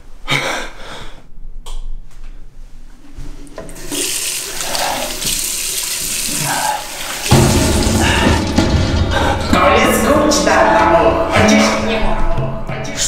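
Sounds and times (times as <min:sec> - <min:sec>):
water running from tap: 0:03.5 - 0:08.4
water splashing on face: 0:03.8 - 0:08.4
loud low boom: 0:07.3 - 0:11.4.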